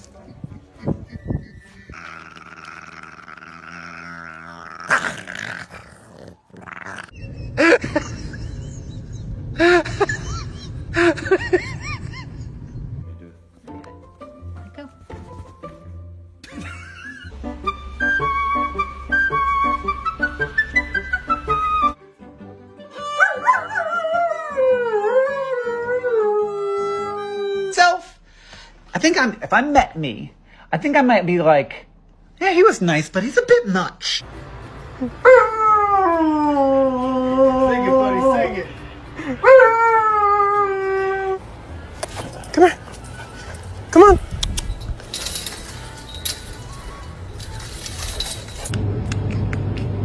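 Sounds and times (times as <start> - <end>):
background music: 13.0 - 27.6, 34.0 - 48.8
dog yelping: 23.0 - 24.1
dog howling: 23.0 - 27.7.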